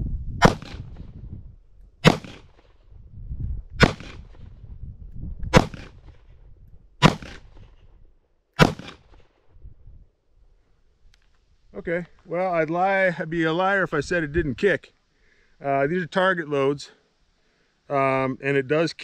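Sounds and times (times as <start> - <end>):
revolver gunshots: 0.4 - 1.0, 2.0 - 2.7, 3.8 - 4.5, 5.5 - 6.2, 7.0 - 7.6, 8.6 - 9.2.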